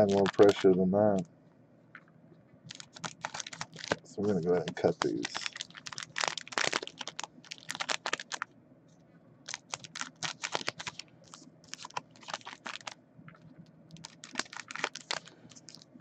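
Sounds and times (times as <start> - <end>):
foil wrappers crinkling: 0.0 - 0.8, 2.7 - 8.5, 9.5 - 13.0, 13.9 - 16.0.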